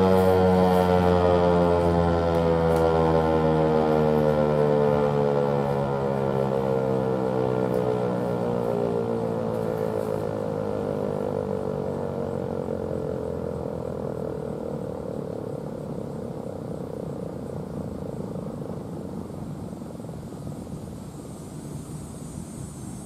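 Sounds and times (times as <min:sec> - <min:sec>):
warning siren winding down: 0:00.0 - 0:15.9.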